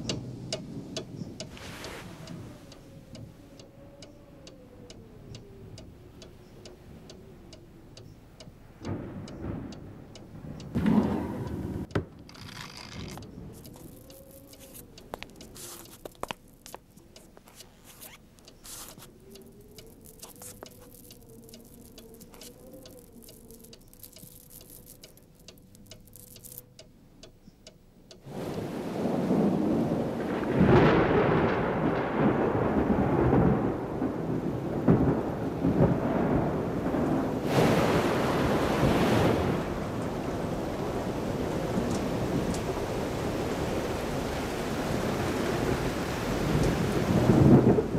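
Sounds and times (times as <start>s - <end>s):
heavy rain hiss: 0.0s - 3.5s, 11.4s - 26.6s, 28.2s - 47.9s
thunder rumbling: 0.0s - 16.7s, 18.7s - 26.6s, 28.3s - 47.9s
faint clicks: 0.0s - 28.6s, 41.8s - 42.7s.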